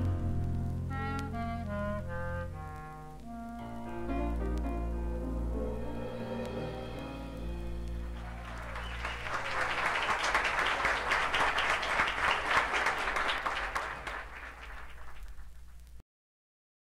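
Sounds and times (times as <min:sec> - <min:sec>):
audience applauding: 0:07.8 - 0:15.8.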